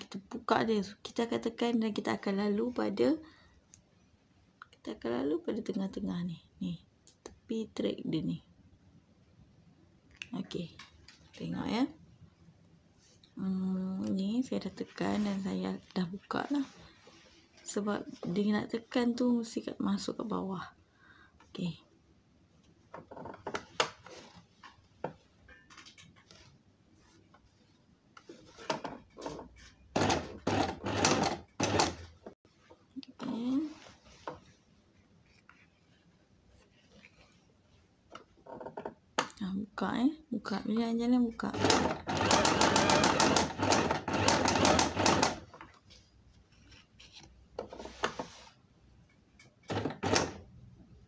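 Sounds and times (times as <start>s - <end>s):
fabric rustling: 14.7s - 19.0s, 24.0s - 28.7s, 33.3s - 37.9s
sewing machine stitching: 29.2s - 32.2s, 41.5s - 45.6s, 49.6s - 50.5s.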